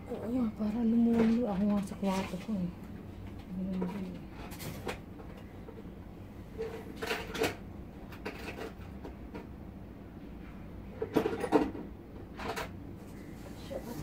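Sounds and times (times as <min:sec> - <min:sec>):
objects knocking and clattering: 0:06.5 - 0:09.6, 0:11.0 - 0:12.8.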